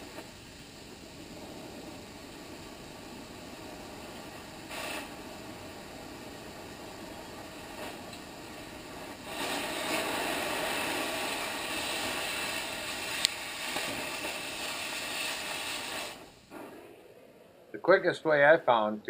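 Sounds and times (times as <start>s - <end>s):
cutting torch hissing: 0.0s - 19.0s
sharp pop: 13.0s - 14.8s, 16.1s - 17.0s.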